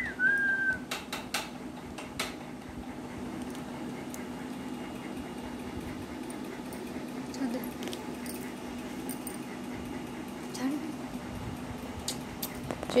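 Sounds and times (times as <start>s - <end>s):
rising whistle: 0.0s - 0.8s
steady low hum: 0.0s - 13.0s.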